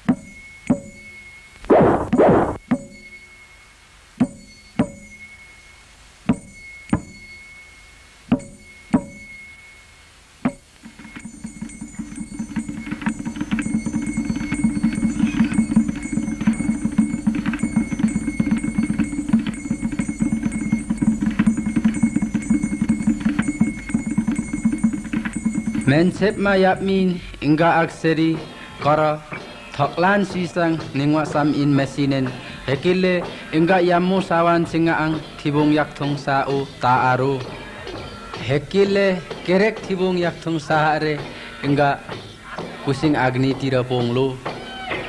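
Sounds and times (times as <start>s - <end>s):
ringing metallic note: 0.2s - 27.0s
sharp drum strikes: 1.7s - 3.0s, 8.3s - 9.2s, 10.4s - 26.9s
fast continuous drumming: 10.5s - 44.7s.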